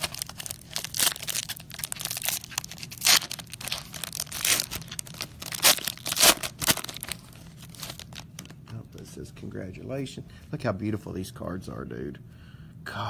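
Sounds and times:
foil wrapper crinkling and ripping: 0.0s - 8.6s.

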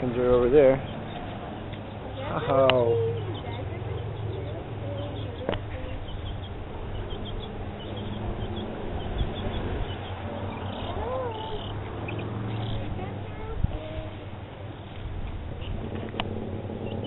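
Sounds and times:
chickens and birds chirping: 0.0s - 17.0s
rising and falling bird call: 0.7s - 12.9s, 15.6s - 17.0s
steady low hum: 2.9s - 17.0s.

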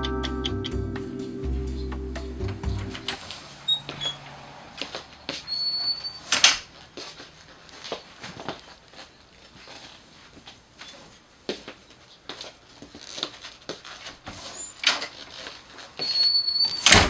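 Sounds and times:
music: 0.0s - 3.2s
faint short squeaks: 3.6s - 4.2s, 5.4s - 6.5s, 14.4s - 15.2s, 16.0s - 16.9s.

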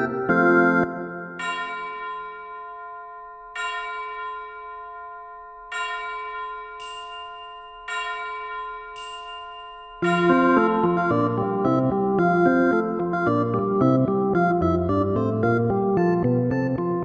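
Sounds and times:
bell-like chime notes: 0.0s - 13.5s
high shimmering sparkle: 1.1s - 11.8s.

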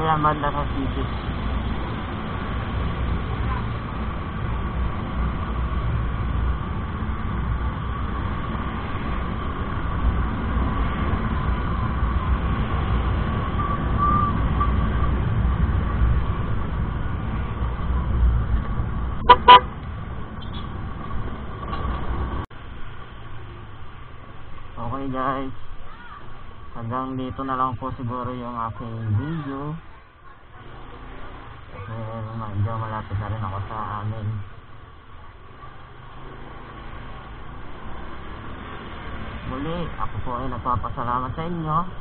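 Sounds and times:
wind and road rumble: 0.0s - 42.0s
scooter horn toots: 19.2s - 19.7s.

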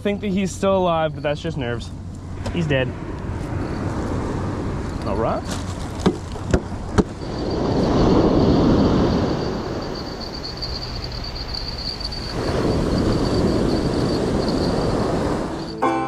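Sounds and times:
ocean surf washing up beach: 7.2s - 15.8s.

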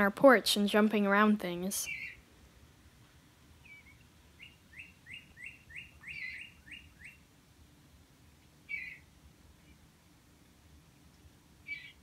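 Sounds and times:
songbird calling falling notes: 1.8s - 2.2s, 3.6s - 7.2s, 8.7s - 9.0s, 11.7s - 12.0s.

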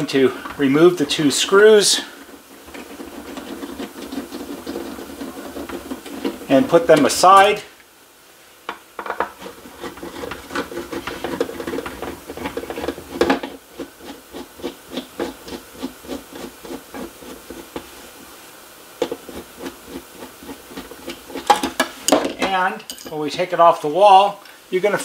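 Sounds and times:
screwdriver scraping turns: 1.6s - 7.2s, 9.2s - 17.8s.

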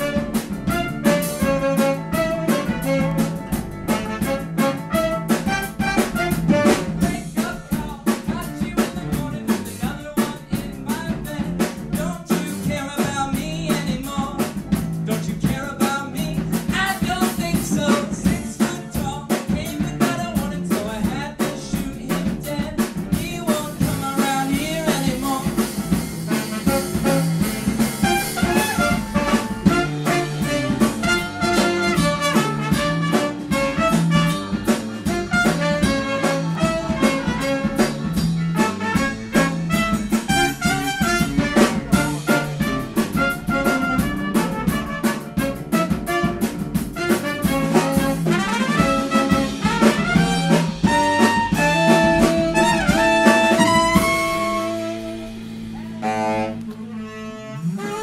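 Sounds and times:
trumpet: 0.0s - 7.2s, 26.2s - 58.0s
saxophone: 0.0s - 7.4s, 24.0s - 58.0s
electric guitar: 0.0s - 15.5s, 21.7s - 56.9s
drum kit: 0.0s - 58.0s.

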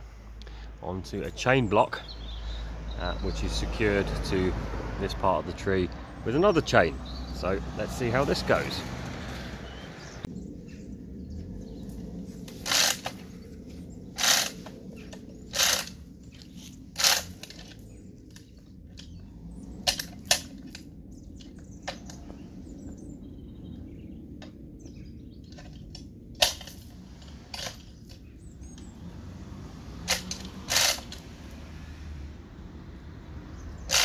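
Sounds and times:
sharp metallic clicks: 14.2s - 22.3s, 30.0s - 31.6s, 33.8s - 34.0s.

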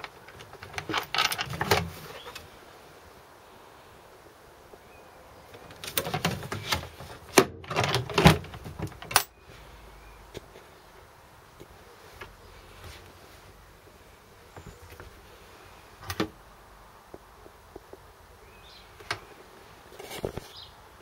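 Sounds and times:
metal panels rattling: 0.0s - 2.5s, 5.6s - 9.4s.

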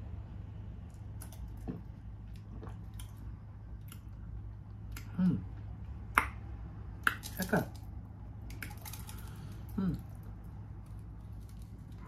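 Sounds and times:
steady low hum: 0.0s - 12.0s
person drinking and swallowing: 1.5s - 4.2s.

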